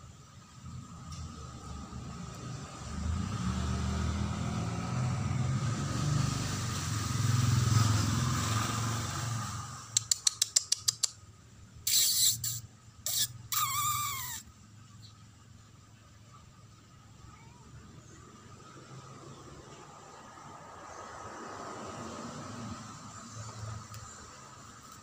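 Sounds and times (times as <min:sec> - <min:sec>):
vehicle passing rumble: 0:00.2 - 0:10.1, 0:13.7 - 0:25.0
sharp clicks: 0:10.0 - 0:11.2
kitten meowing: 0:11.9 - 0:14.4, 0:17.3 - 0:17.7.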